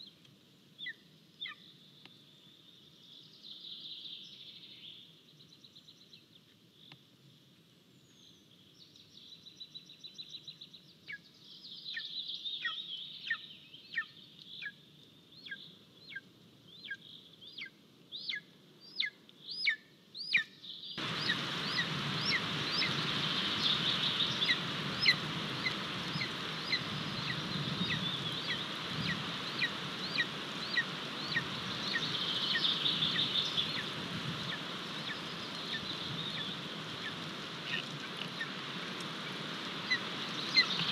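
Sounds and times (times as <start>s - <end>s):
eaglet begging calls: 17.6s - 38.6s, 39.2s - 40.9s
steady rushing noise: 21.0s - 40.9s.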